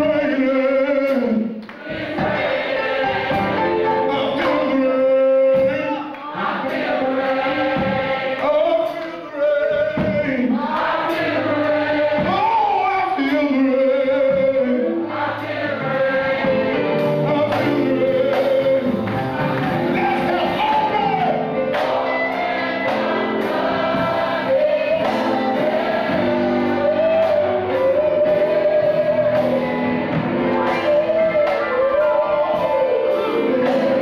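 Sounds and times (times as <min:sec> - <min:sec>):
man singing into microphone: 0:00.0 - 0:01.6, 0:04.0 - 0:06.2, 0:08.4 - 0:10.7, 0:11.3 - 0:15.1, 0:16.8 - 0:21.6, 0:24.5 - 0:30.0, 0:30.6 - 0:34.0
choir singing along: 0:00.0 - 0:34.0.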